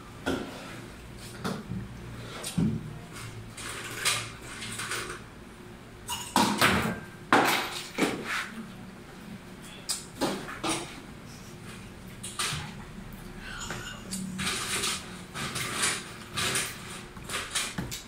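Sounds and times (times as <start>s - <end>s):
cups and utensils clattering: 6.1s - 8.2s, 13.5s - 18.0s.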